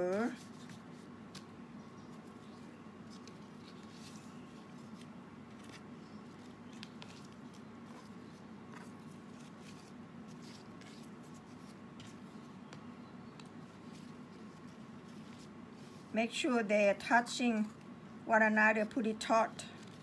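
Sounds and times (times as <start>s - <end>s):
leaf strips rustling and crackling: 0.0s - 12.5s.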